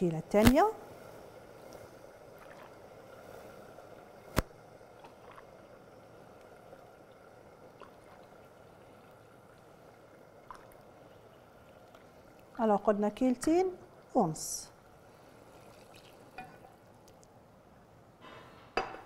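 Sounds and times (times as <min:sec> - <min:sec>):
faint simmering: 0:00.0 - 0:19.0
broth poured into pan: 0:15.0 - 0:17.2.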